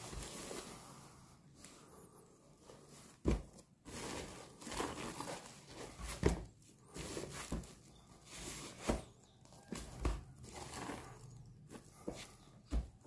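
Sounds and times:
plastic film crinkling: 0:03.8 - 0:06.3.

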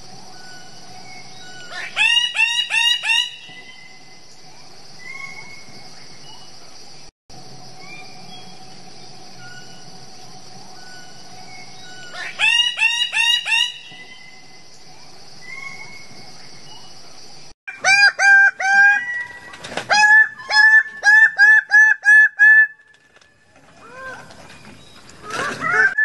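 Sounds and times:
high-pitched hum: 0:00.0 - 0:17.9.

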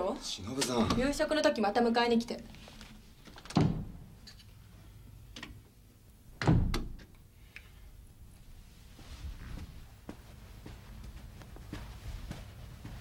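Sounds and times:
door thunking shut: 0:03.5 - 0:03.9, 0:06.4 - 0:07.0.

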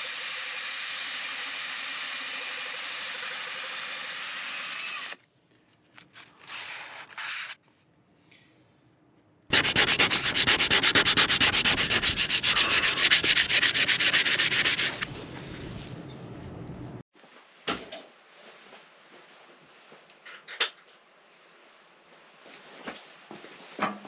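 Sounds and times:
sandpaper rasping on wood: 0:09.5 - 0:15.0.

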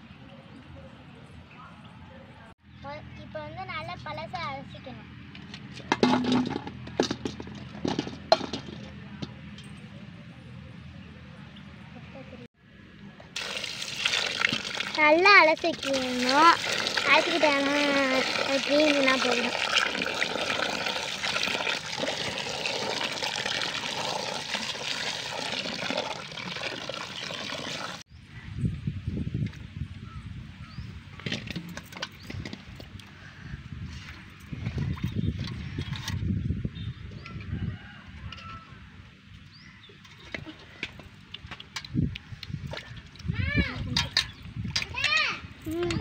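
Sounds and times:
lemons clattering into metal pot: 0:05.8 - 0:09.4
water pouring into metal basin: 0:13.4 - 0:28.0.

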